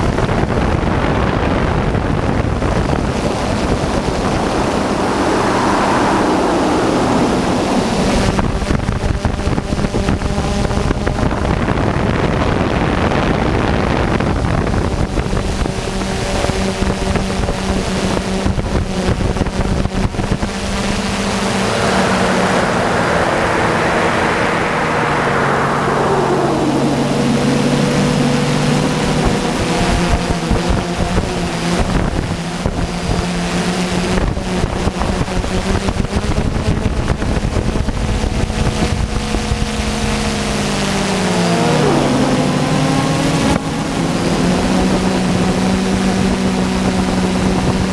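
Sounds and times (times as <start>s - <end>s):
wind on microphone: 0.0s - 47.9s
drone motors whining: 2.3s - 10.8s, 17.6s - 32.5s, 37.6s - 47.8s.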